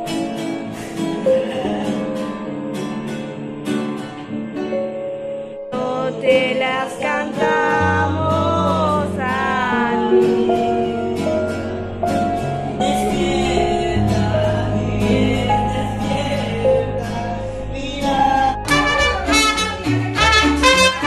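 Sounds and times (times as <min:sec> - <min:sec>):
person singing: 0:00.0 - 0:03.8, 0:04.8 - 0:21.0
acoustic guitar: 0:00.0 - 0:21.0
mariachi band trumpets playing: 0:18.6 - 0:21.0.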